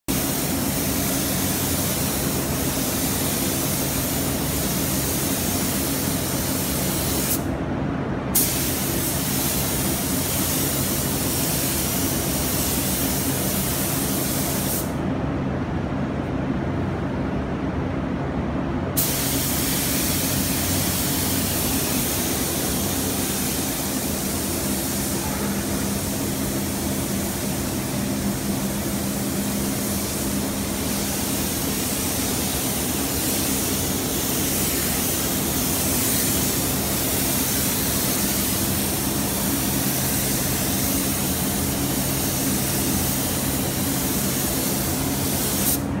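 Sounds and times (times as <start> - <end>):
paint spray gun hissing: 0.1 - 7.4, 8.4 - 14.9, 19.0 - 45.9.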